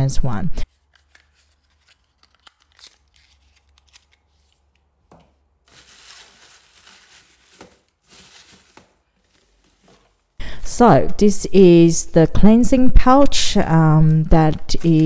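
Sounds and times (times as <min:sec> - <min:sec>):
paper bag rustling: 0:05.6 - 0:10.4
small items clicking and tapping: 0:13.2 - 0:15.0.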